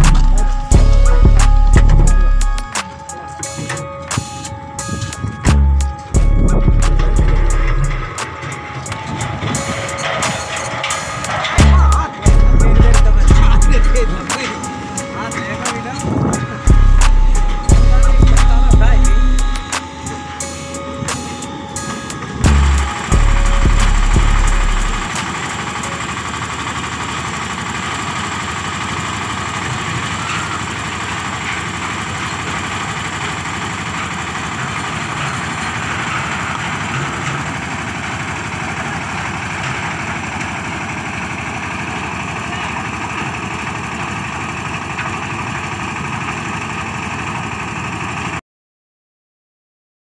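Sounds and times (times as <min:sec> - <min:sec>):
loud low rumble: 0:00.0 - 0:02.7, 0:05.5 - 0:14.2, 0:16.6 - 0:19.7, 0:22.4 - 0:25.1
lift engine running: 0:00.0 - 0:48.4.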